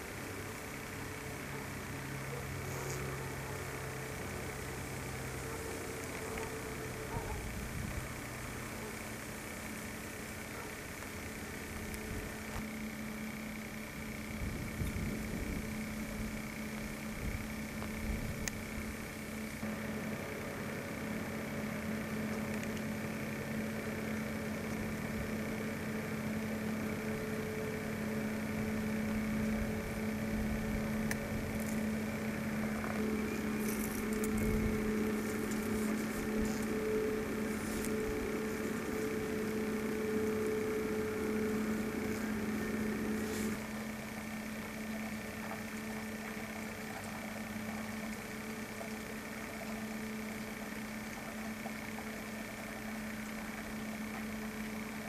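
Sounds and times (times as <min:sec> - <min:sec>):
constant hiss: 0:00.0 - 0:55.0
low mechanical hum: 0:00.0 - 0:55.0
higher hum note: 0:26.0 - 0:47.5.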